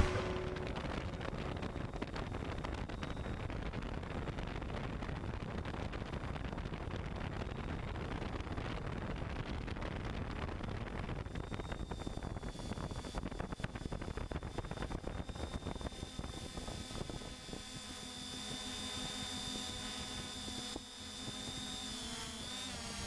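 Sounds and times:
faint high whine: 0.0s - 4.5s
wind noise on microphone: 0.0s - 17.8s
drone motors and propellers: 11.3s - 23.0s.

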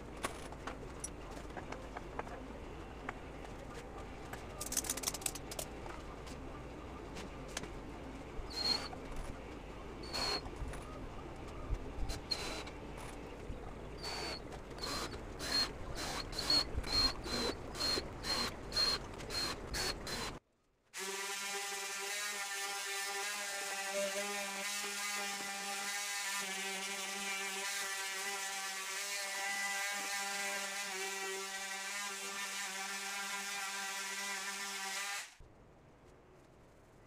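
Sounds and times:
cordless drill driving screws: 10.0s - 10.4s, 12.1s - 12.7s, 14.0s - 20.4s.

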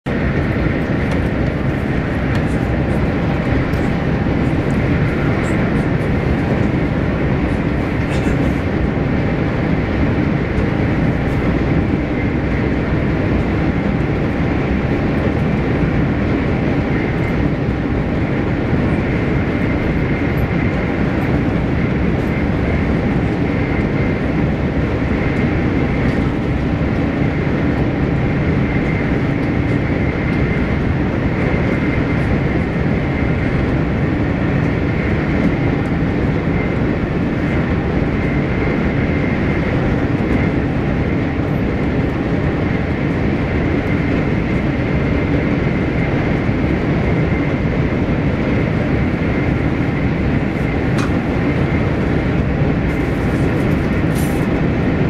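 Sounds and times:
train cabin rushing noise: 48.5s - 54.9s.

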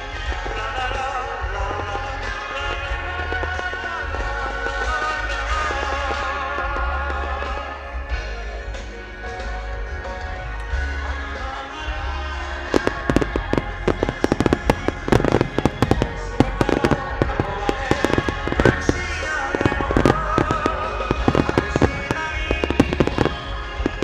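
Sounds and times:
fireworks bursting and crackling: 0.0s - 24.0s
music: 0.0s - 24.0s.

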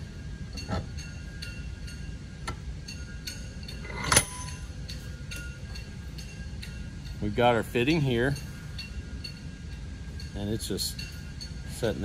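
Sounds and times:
ringing metal clink: 0.5s - 12.0s
metal parts clicking and clinking: 3.2s - 4.7s.

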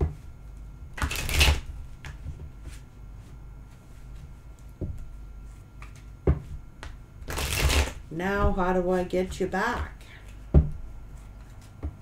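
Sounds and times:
cards being shuffled: 1.0s - 2.8s, 7.3s - 8.0s, 11.2s - 11.8s.

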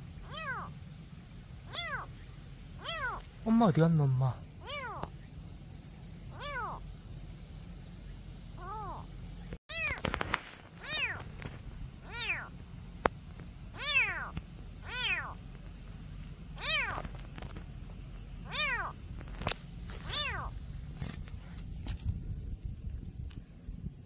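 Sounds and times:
kitten meowing: 0.2s - 0.7s, 1.7s - 2.1s, 2.8s - 3.3s, 4.6s - 5.1s, 6.3s - 6.8s, 8.6s - 9.1s, 9.7s - 10.0s, 10.8s - 11.2s, 12.0s - 12.5s, 13.8s - 15.4s, 16.6s - 17.1s, 18.4s - 19.0s, 20.0s - 20.5s.

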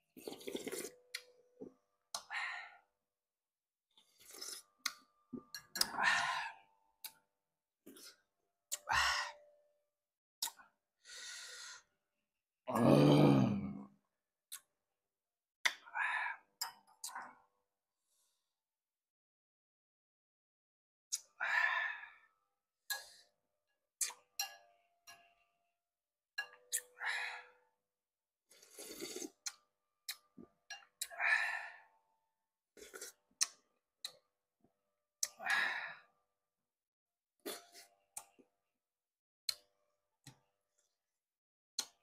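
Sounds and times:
slurping porridge: 0.1s - 1.0s, 4.0s - 5.0s, 28.5s - 29.6s, 32.8s - 33.6s.

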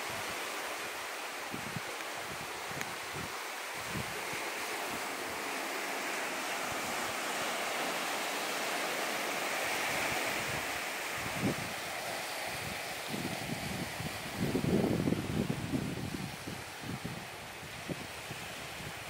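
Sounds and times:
sea surf washing on beach: 0.0s - 19.0s
wind bumps on microphone: 10.0s - 11.9s, 12.5s - 19.0s.

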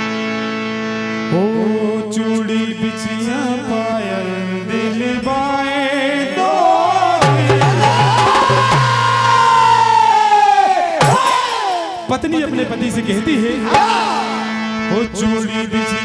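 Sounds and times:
harmonium chord: 0.0s - 5.2s, 12.1s - 16.0s
man singing folk song: 1.3s - 8.5s
hand drum strokes: 7.2s - 9.4s.

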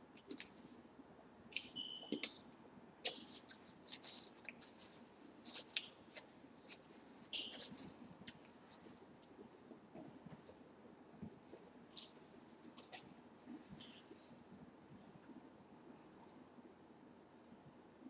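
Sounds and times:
paper napkin crinkling: 3.1s - 9.7s, 11.9s - 14.3s.

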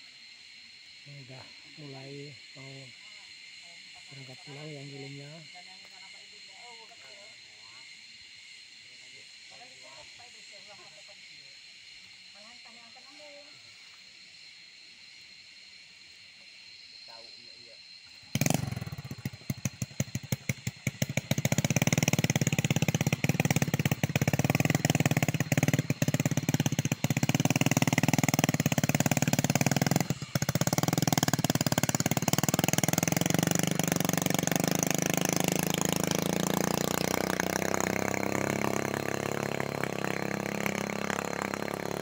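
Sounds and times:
motorcycle engine pulling away: 18.2s - 42.0s.

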